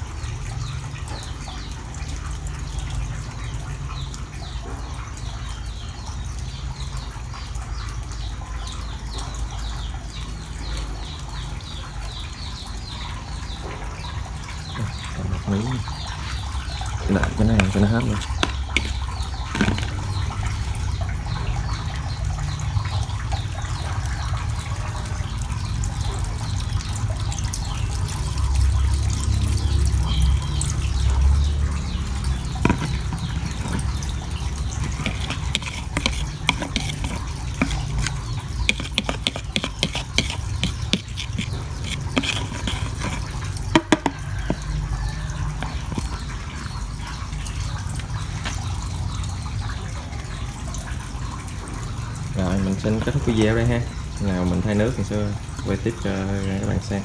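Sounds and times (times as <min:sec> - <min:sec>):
water running: 0:00.0 - 0:57.0
metal spoon tapping plastic bowl: 0:17.2 - 0:20.0, 0:32.6 - 0:33.9, 0:34.8 - 0:44.6.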